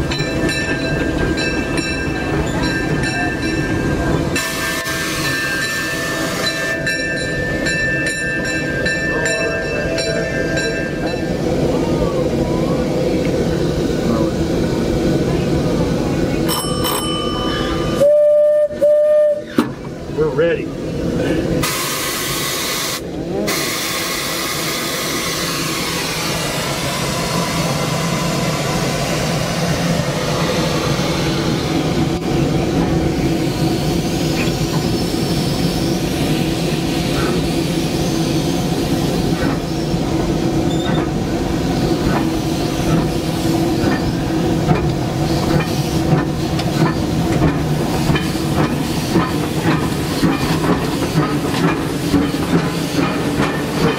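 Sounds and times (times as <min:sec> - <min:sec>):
regular locomotive knocks: 0:00.0 - 0:04.5, 0:41.9 - 0:53.9
steam locomotive hiss and whine: 0:00.0 - 0:53.9.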